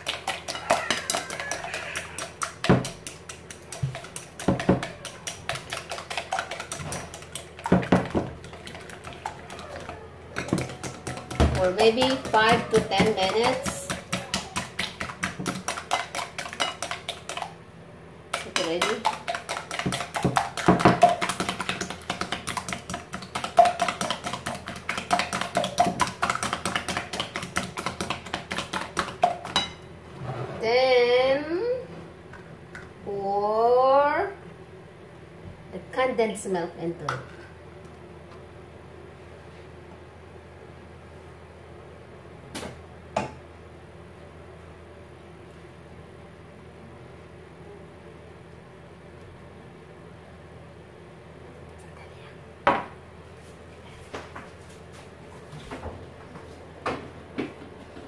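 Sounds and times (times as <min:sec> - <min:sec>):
whisk knocking on bowl: 0:00.0 - 0:09.6, 0:10.4 - 0:17.5, 0:18.3 - 0:29.7
whisk clicking against glass bowl: 0:18.3 - 0:29.7.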